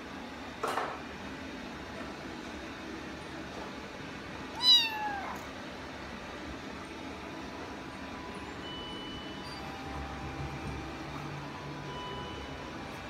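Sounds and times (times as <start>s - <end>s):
kitten meowing: 4.5s - 5.5s.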